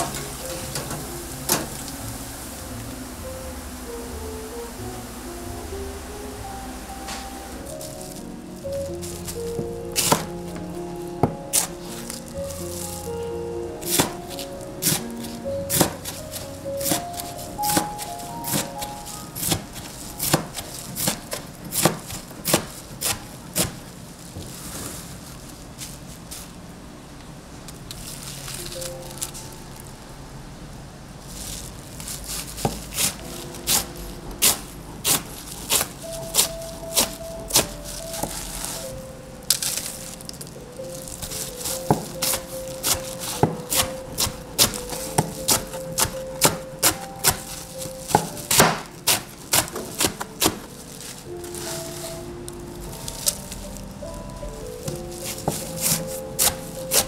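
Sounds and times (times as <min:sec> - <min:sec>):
knife chopping on cutting board: 0:20.2 - 0:23.8.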